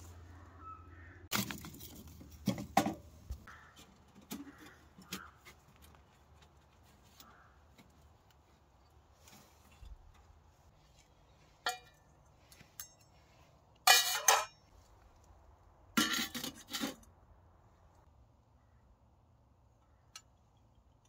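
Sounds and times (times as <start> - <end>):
metal cookware clinking and clattering: 13.8 - 14.6.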